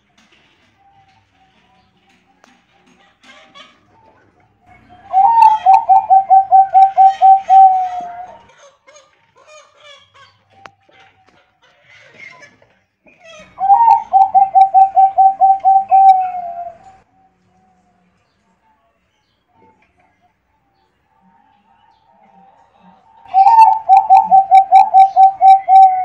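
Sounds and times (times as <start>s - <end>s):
dove cooing: 4.9s - 8.5s, 13.4s - 17.0s, 23.3s - 26.0s.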